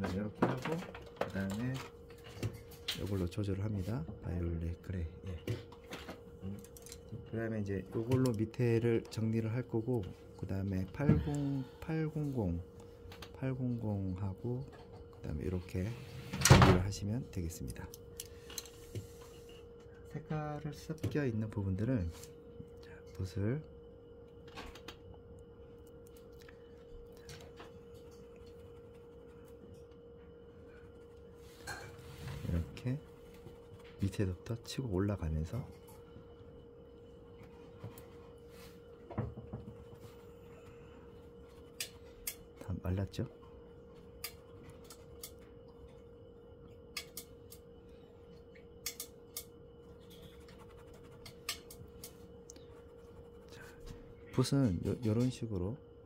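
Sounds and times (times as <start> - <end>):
faint steady hum: 0.0 - 56.0
paint brush scratching canvas: 50.1 - 51.8, 52.7 - 53.7.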